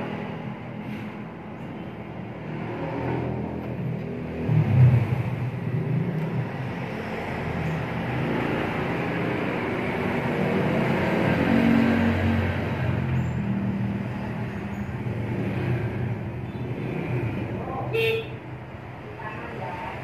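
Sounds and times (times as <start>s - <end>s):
motor engine rumbling: 0.0s - 10.4s.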